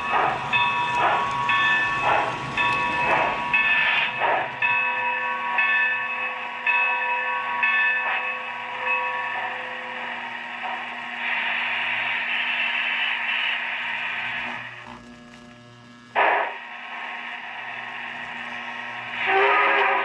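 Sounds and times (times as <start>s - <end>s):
steam hiss: 0.0s - 4.6s, 9.4s - 14.8s, 16.2s - 20.0s
ringing strikes: 0.0s - 11.0s
steady low hum: 0.0s - 20.0s.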